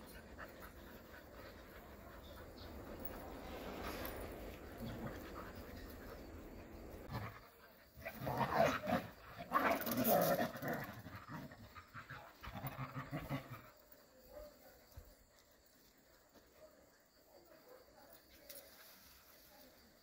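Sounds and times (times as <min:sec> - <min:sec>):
dogs panting: 0:00.0 - 0:08.0
dogs growling and snarling: 0:00.0 - 0:13.8.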